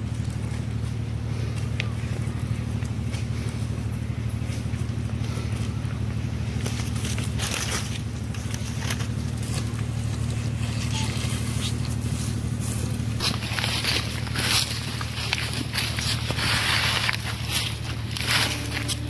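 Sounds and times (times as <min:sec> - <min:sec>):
low engine hum: 0:00.0 - 0:19.0
animal biting and crunching carcass: 0:06.4 - 0:19.0.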